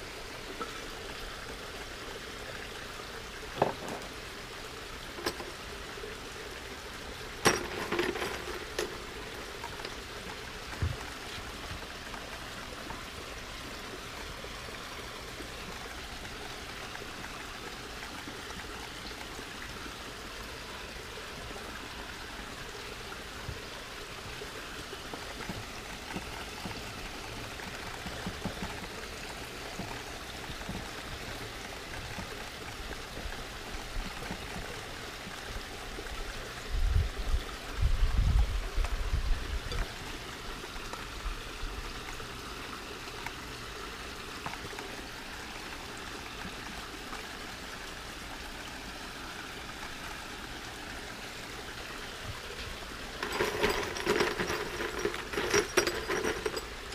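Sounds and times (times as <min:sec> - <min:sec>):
water trickling: 0:00.0 - 0:56.9.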